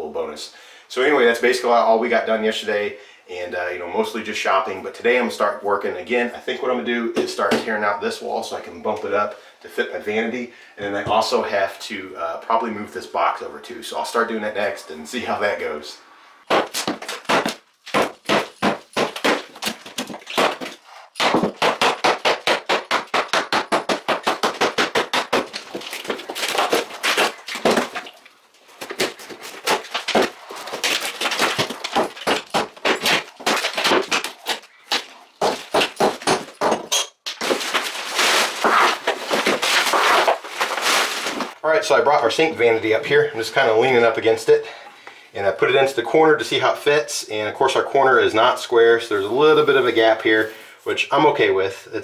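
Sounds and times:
hammer breaking drywall: 0:16.5 - 0:28.2, 0:28.8 - 0:41.5.

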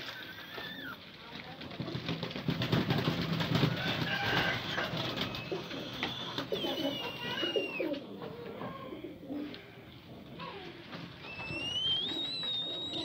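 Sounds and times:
pigeons cooing: 0:03.0 - 0:13.0.

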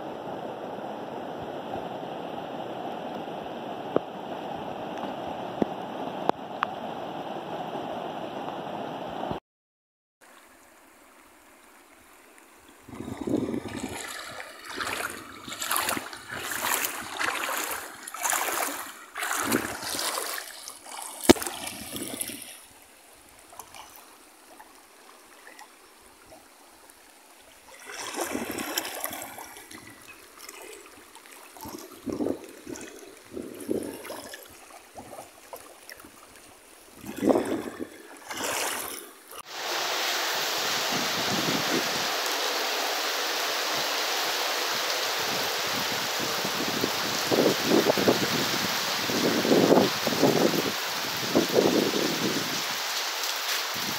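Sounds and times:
floodwater rushing through brush: 0:10.2 - 0:53.9
heavy rain pouring on ground: 0:39.4 - 0:53.9.

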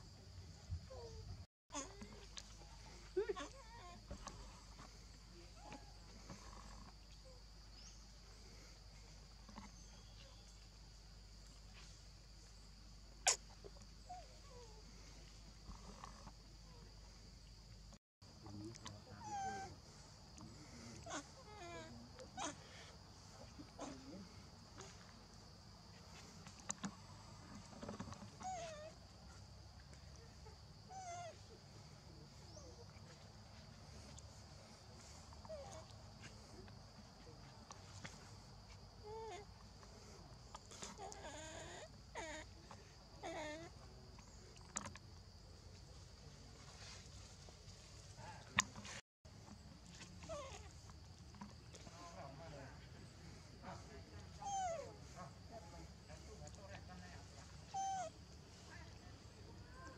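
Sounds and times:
faint chirps: 0:00.0 - 0:17.8
forest insects droning: 0:00.0 - 0:59.9.

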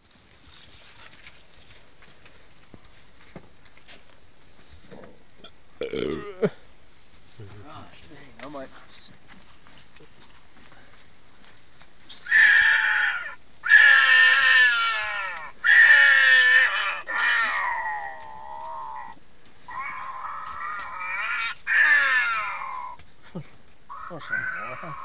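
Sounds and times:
horses whinnying: 0:12.2 - 0:23.0, 0:23.9 - 0:25.0.

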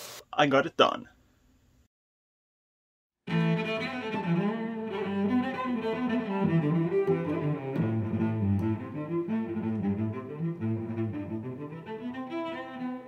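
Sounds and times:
fiddle playing a jig: 0:03.3 - 0:13.0.

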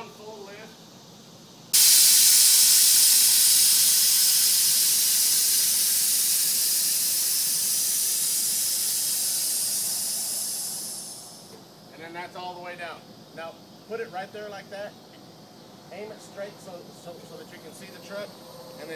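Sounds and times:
air valves hissing: 0:01.7 - 0:11.6.

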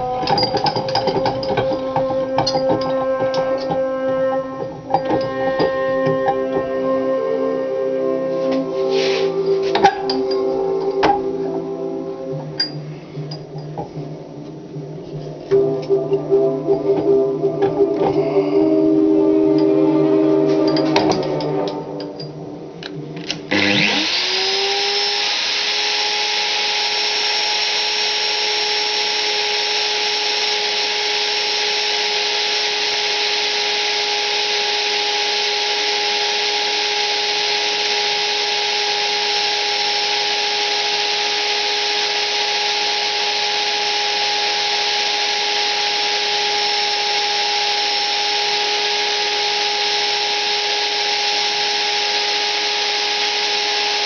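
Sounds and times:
electric motor whine: 0:00.0 - 0:13.0, 0:23.2 - 0:54.0
loud even hiss: 0:08.2 - 0:11.3, 0:23.3 - 0:54.0.

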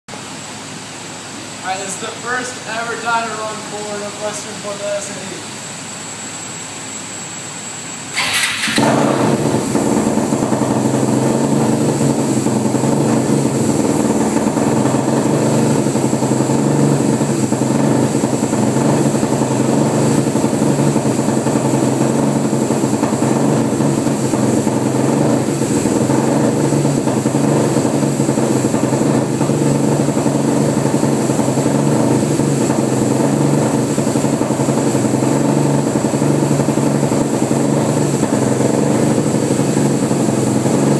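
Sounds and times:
engine running on dynamometer: 0:07.7 - 0:40.9.

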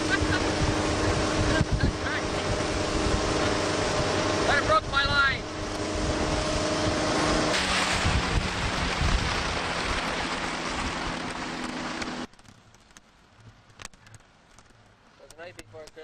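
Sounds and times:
boat motor running: 0:00.0 - 0:12.3
wind and water rushing: 0:00.0 - 0:12.3
faint clicks: 0:12.4 - 0:16.0.

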